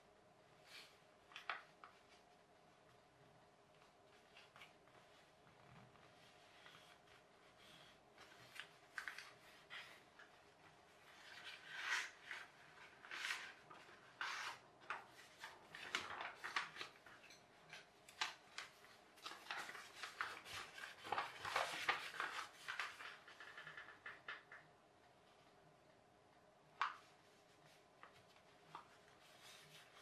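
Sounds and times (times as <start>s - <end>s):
paper being folded and creased: 3.8s - 24.4s, 26.8s - 30.0s.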